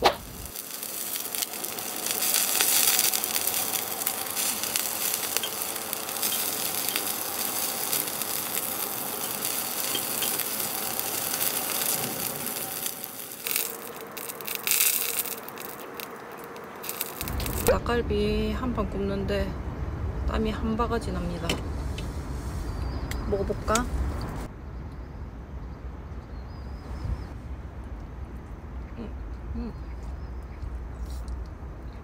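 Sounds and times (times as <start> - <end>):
chicken sizzling in a grill pan: 0.0 - 17.7.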